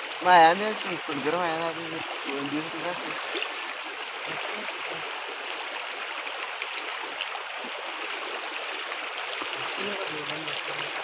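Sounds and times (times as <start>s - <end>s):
river water running over rocks: 0.0s - 11.0s.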